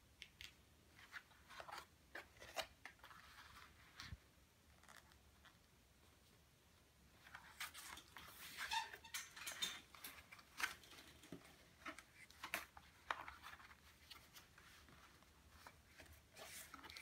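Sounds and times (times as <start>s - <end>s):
cardstock rustling and crackling: 9.8s - 17.0s.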